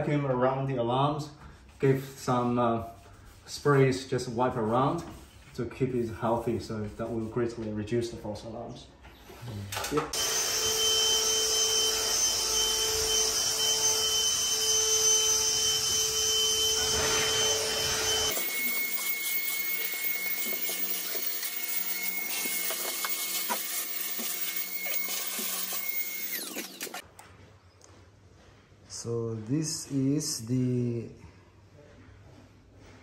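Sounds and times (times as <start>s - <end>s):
high whine: 10.2s - 22.5s
cordless drill running: 10.2s - 27.0s.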